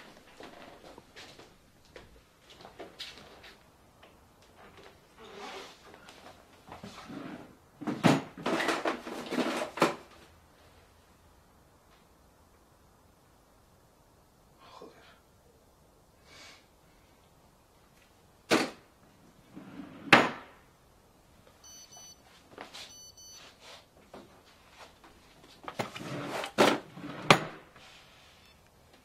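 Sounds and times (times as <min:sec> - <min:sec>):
rustling: 0:21.4 - 0:29.0
short electronic beeps: 0:21.6 - 0:22.2, 0:22.9 - 0:23.4.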